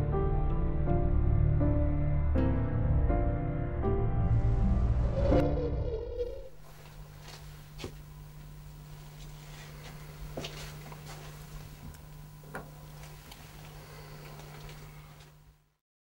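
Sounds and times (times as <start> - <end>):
steady low hum: 3.8 - 15.8.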